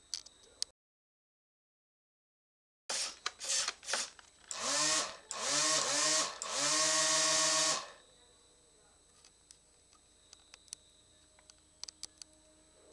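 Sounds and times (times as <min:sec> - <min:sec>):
small electric motor whining: 0:02.9 - 0:08.0.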